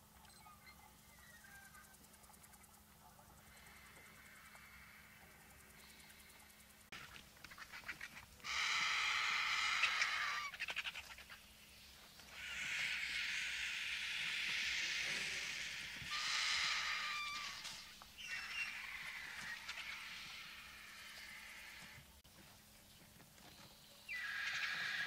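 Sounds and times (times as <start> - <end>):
vultures rattling chatter: 0.4 - 22.1, 24.1 - 25.0
vulture squealing call: 7.5 - 11.4, 12.3 - 22.0, 24.1 - 25.0
vulture hissing: 12.3 - 21.9.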